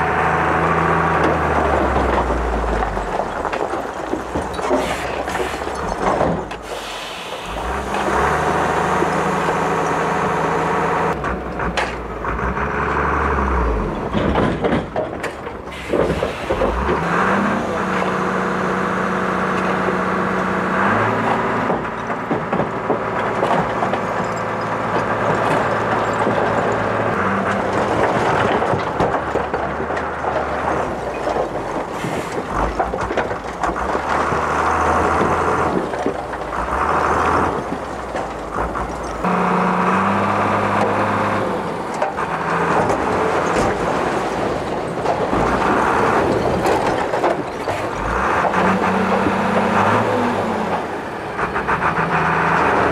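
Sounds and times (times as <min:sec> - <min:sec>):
diesel truck engine under load: 0:00.0 - 0:52.9
stones and rubble sliding out: 0:01.3 - 0:10.0, 0:21.8 - 0:39.3.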